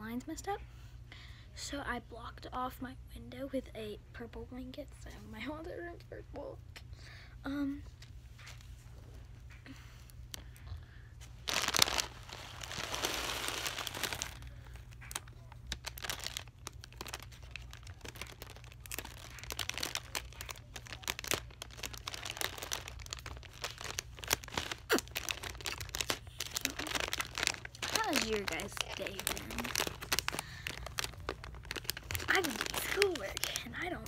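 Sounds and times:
plastic crinkling: 10.3 - 34.0.

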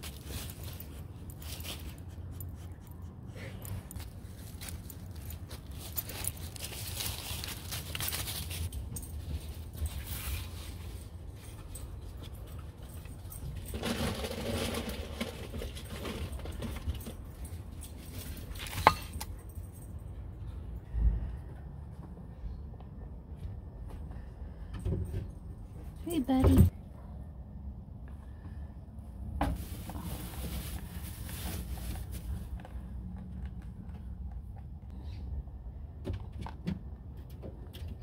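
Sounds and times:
dry hay rustling: 0.0 - 2.2, 4.0 - 8.7, 29.5 - 32.4.

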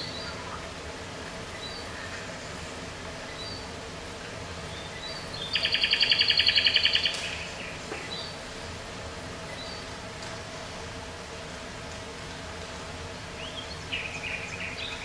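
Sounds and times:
recorded birdsong chirps: 0.0 - 15.0
steady hiss: 0.0 - 15.0
rapid bird trill: 4.7 - 8.4.

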